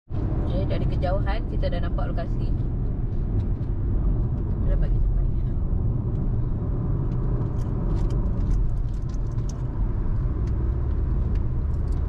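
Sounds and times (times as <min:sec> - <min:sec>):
car road rumble: 0:00.1 - 0:12.0
faint rattles and ticks: 0:07.1 - 0:09.8.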